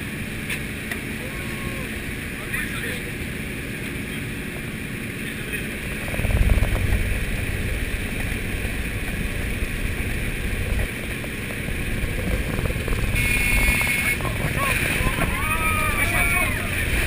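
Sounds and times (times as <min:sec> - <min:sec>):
aircraft engine drone: 0:00.0 - 0:17.0
wind rushing: 0:05.8 - 0:17.0.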